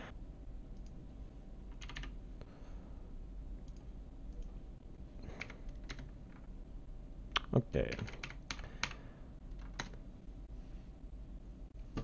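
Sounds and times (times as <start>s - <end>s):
keyboard keystrokes: 1.7s - 2.1s, 7.9s - 10.0s.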